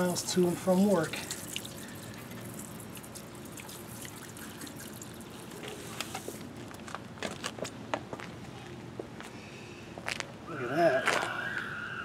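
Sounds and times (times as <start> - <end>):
hose water spraying a wheel: 0.1 - 6.4
water drips and splashes: 0.3 - 5.8.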